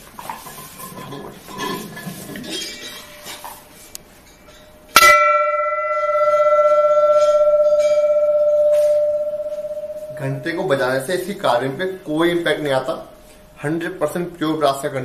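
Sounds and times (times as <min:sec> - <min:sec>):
brass bell ringing: 0:05.0 - 0:11.2.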